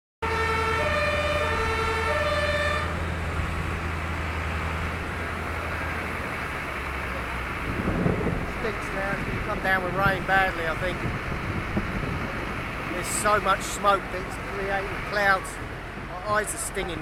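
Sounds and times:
two-tone fire engine siren: 0.2 - 4.2.

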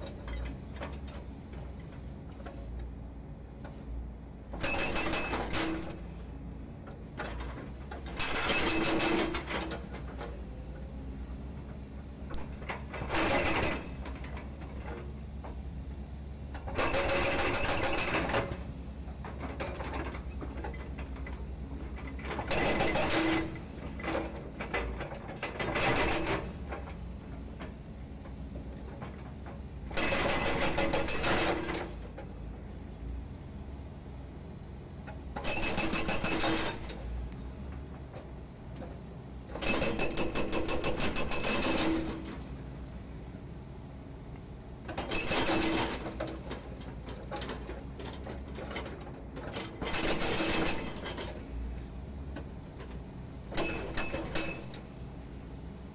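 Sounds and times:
excavator diesel engine running: 0.0 - 55.9
hydraulic breaker hammering concrete: 39.6 - 42.3.

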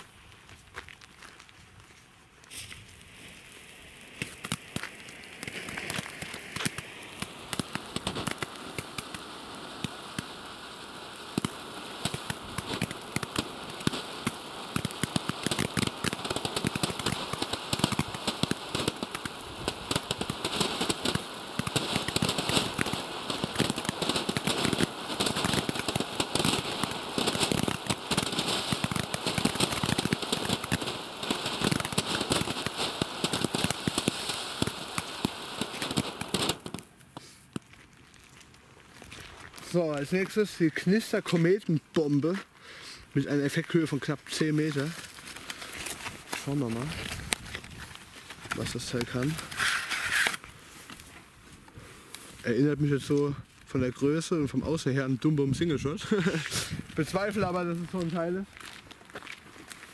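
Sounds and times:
firework crackles and pops: 0.0 - 59.9
firework sparks hissing: 1.4 - 38.6, 39.5 - 59.9.

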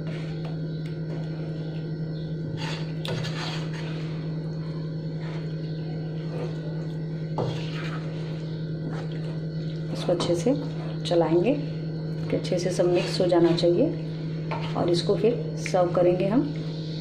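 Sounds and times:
steady low hum: 0.0 - 17.0
spatula scraping a wok: 2.5 - 4.3, 7.4 - 9.2, 12.8 - 13.8, 14.5 - 15.1.

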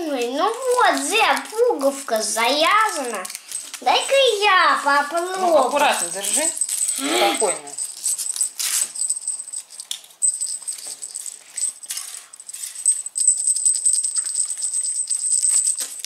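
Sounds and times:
foil crinkling: 0.0 - 9.0
small bell jingling: 0.0 - 16.0.

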